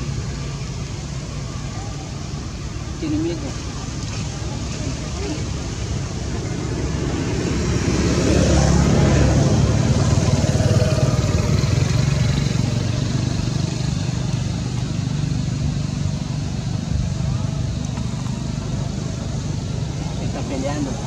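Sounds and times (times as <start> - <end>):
vehicle engine rumble: 0.0 - 21.0.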